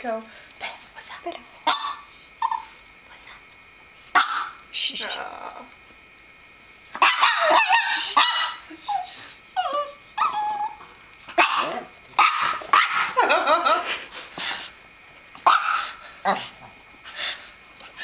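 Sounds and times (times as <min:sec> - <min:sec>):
small dog barking: 0:01.6 - 0:02.1, 0:04.2 - 0:04.6, 0:07.0 - 0:08.6, 0:11.4 - 0:13.2, 0:15.4 - 0:16.0
dog whining: 0:01.8 - 0:02.8, 0:07.0 - 0:11.9.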